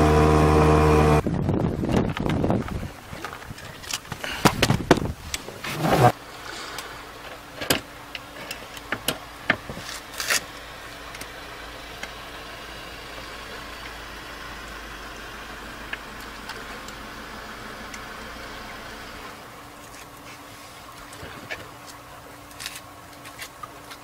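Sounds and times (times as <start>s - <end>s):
clicks and knocks on outboard motor: 1.8s - 5.5s.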